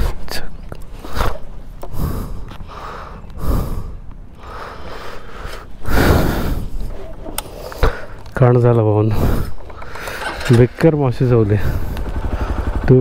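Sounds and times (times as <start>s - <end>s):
person breathing hard: 1.0s - 8.3s, 9.1s - 10.4s, 11.4s - 12.8s.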